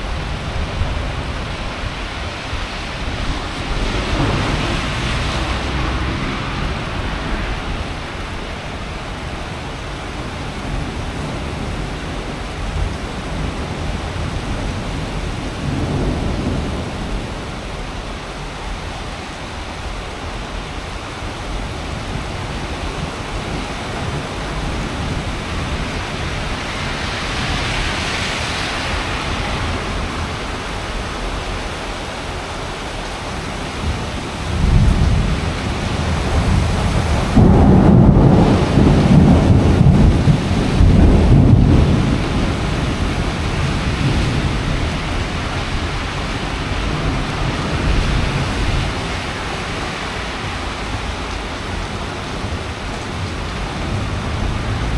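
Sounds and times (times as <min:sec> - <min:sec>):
rolling thunder: 0:00.0 - 0:18.5, 0:33.8 - 0:54.9
heavy rain falling: 0:00.0 - 0:54.9.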